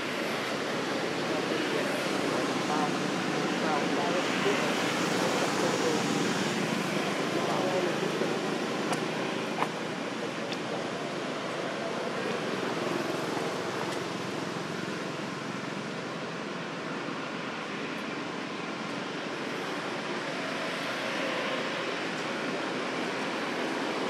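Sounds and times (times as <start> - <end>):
outdoor ambience rushing noise: 0.0 - 24.0.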